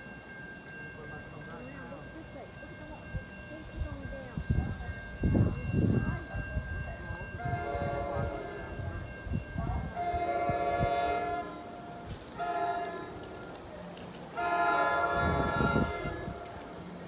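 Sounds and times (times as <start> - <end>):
train horn blasts: 7.4 - 8.8, 9.8 - 13.6, 14.3 - 16.8.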